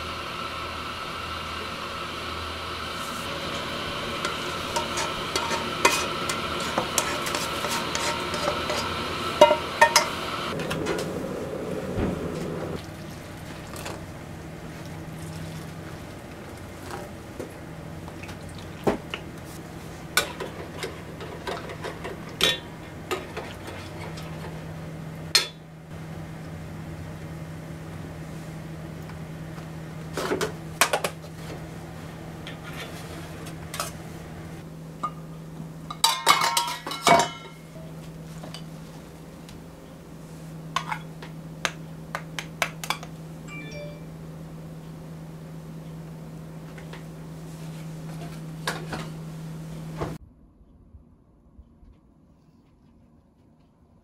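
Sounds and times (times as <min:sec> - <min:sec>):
steady low hum: 0:00.0 - 0:36.1, 0:36.8 - 0:54.0
steel bowls and utensils clinking: 0:03.5 - 0:10.2, 0:35.9 - 0:37.9.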